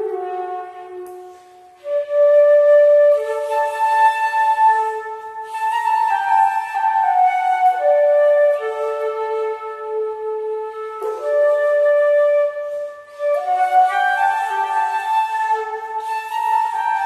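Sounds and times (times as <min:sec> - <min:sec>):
slow flute melody: 0:00.0 - 0:17.0
flute player breath: 0:01.0 - 0:02.0.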